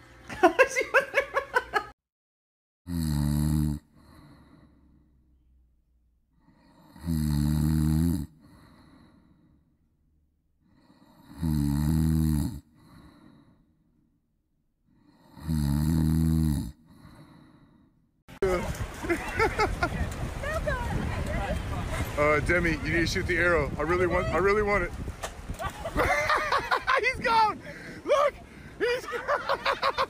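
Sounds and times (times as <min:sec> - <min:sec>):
dog snoring: 0:02.9 - 0:04.6, 0:06.4 - 0:09.1, 0:10.8 - 0:13.4, 0:15.0 - 0:17.5.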